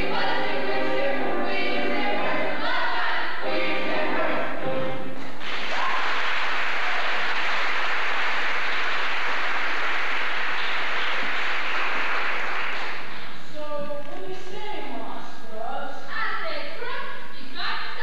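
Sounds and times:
audience applauding: 5.4 - 13.4.

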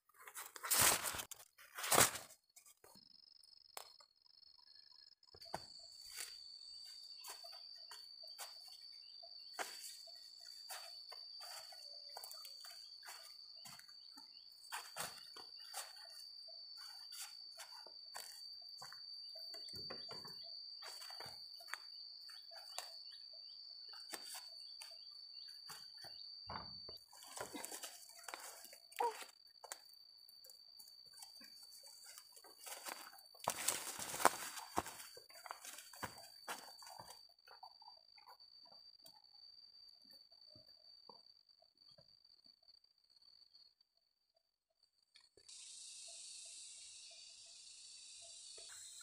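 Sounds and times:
dry corn leaves snapping and rustling: 0.2 - 2.3, 32.0 - 35.9
high-pitched insect drone: 3.0 - 43.8, 45.2 - 49.0.

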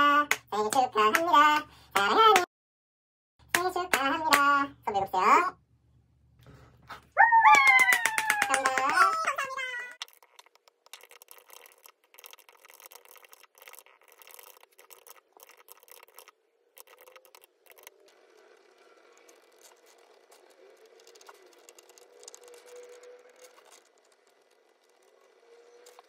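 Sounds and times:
typing on computer keyboard: 10.0 - 17.9, 19.2 - 26.0
pen scratching on paper: 10.1 - 17.9.

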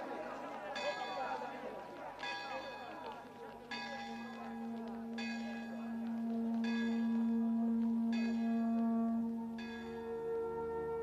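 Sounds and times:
bell tolling slowly: 3.7 - 11.0.

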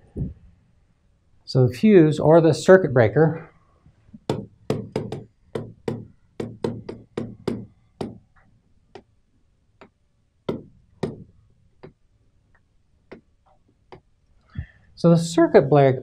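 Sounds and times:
stylus tapping on glass: 9.8 - 12.0.

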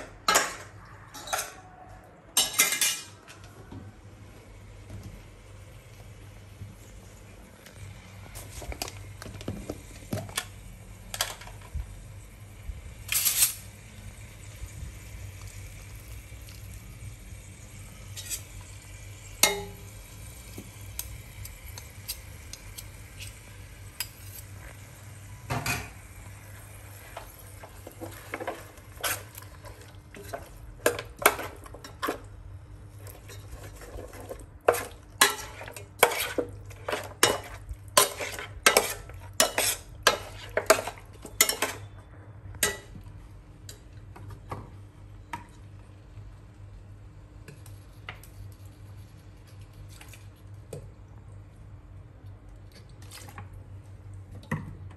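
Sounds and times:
metal ladle scraping a pot: 18.2 - 18.5, 33.3 - 41.9.

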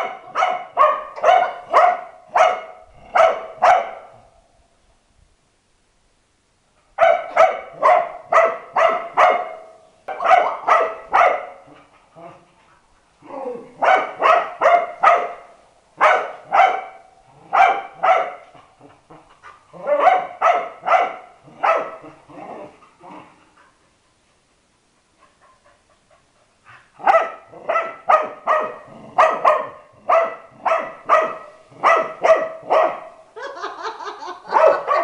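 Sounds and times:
dog barking: 0.0 - 4.2, 7.0 - 11.7, 13.8 - 18.5, 19.8 - 22.1, 27.0 - 33.2, 34.5 - 35.0.

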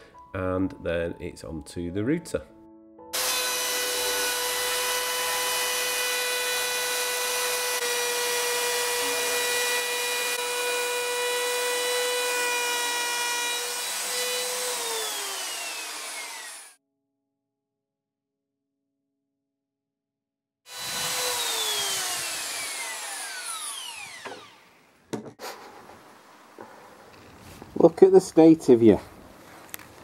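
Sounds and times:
router cutting wood: 3.2 - 16.8, 20.7 - 24.9
router motor spinning down: 3.2 - 16.8, 20.7 - 24.8.

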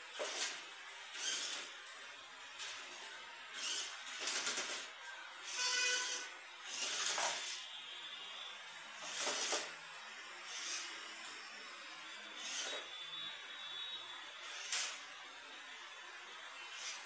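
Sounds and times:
electric motor and gearbox whining: 0.0 - 17.0.

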